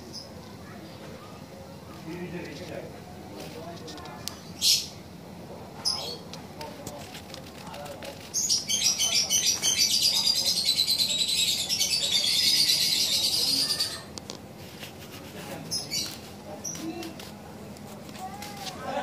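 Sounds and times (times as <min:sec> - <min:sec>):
bird trilling: 0:08.3 - 0:14.1.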